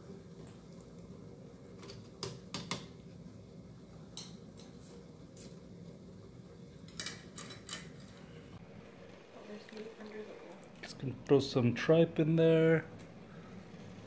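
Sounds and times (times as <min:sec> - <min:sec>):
dishes and utensils clinking: 0:06.9 - 0:08.2.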